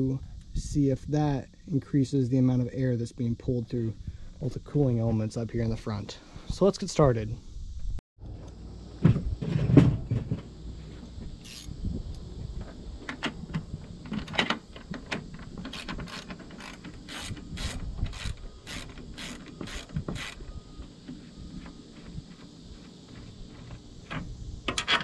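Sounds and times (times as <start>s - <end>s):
ratchet wrench clicking: 11.4s - 11.7s, 15.7s - 20.4s.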